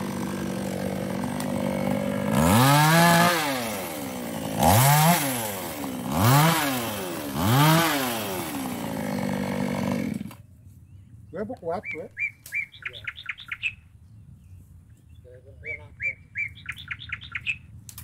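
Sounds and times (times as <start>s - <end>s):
chainsaw idling and revving: 0.0s - 10.4s.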